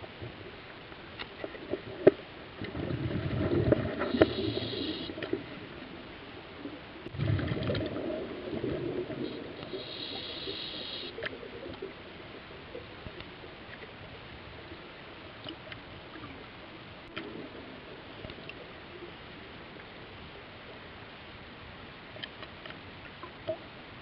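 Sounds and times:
muffled underwater noise: 1.3s - 22.2s
low underwater swell: 2.6s - 12.8s
faint clicks: 9.6s - 11.9s, 15.4s - 17.4s, 18.1s - 18.7s, 22.1s - 23.6s.

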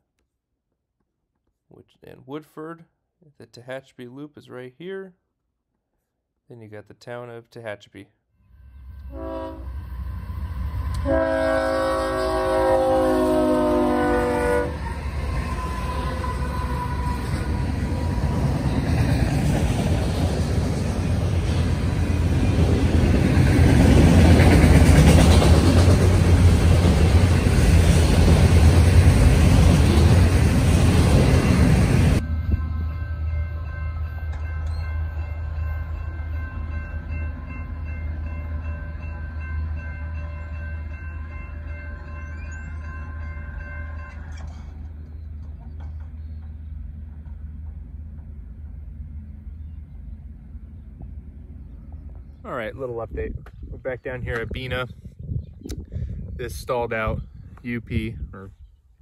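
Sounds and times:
faint distant train tones: 8.4s - 53.2s
diesel locomotives rumbling: 8.7s - 54.8s
train wheels clacking on rails: 22.6s - 31.8s.

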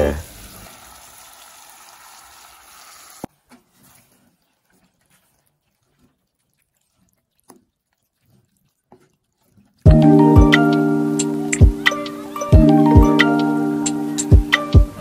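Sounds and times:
spoon stirring thick beans: 3.3s - 12.5s.

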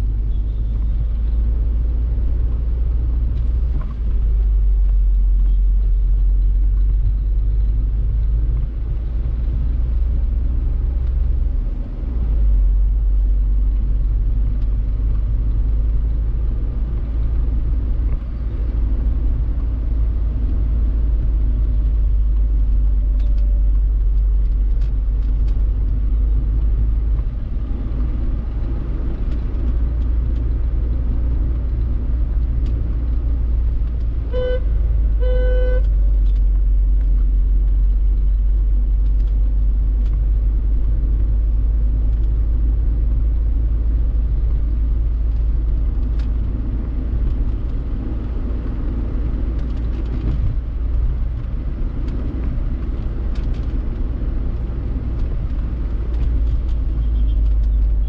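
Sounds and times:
car road and engine rumble: 0.0s - 58.0s
vehicle horn tooting: 34.3s - 34.6s, 35.2s - 35.9s.

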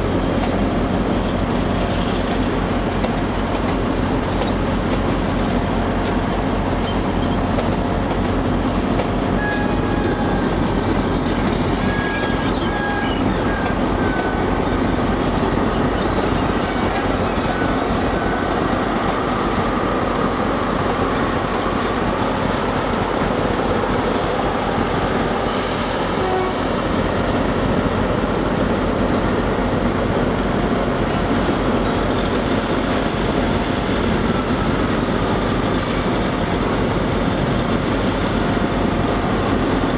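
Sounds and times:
diesel engines running: 0.0s - 39.9s
train coaches rumbling over track: 0.0s - 39.9s
high wheel squeals: 5.8s - 19.2s.

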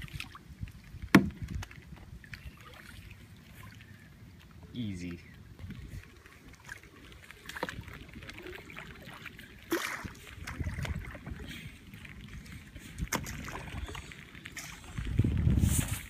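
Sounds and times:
water splashing and dripping: 0.0s - 16.0s
knocks on kayak: 1.1s - 1.4s.

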